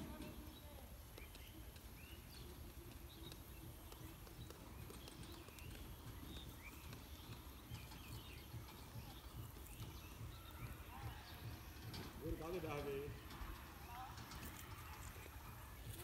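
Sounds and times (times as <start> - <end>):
bird chirps: 0.2 - 11.6.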